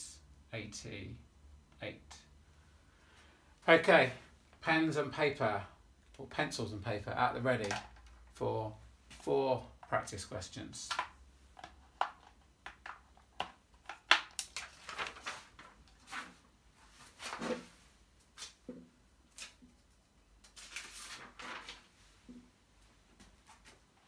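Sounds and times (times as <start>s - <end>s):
paper rustling: 14.4s - 18.6s, 20.4s - 22.1s.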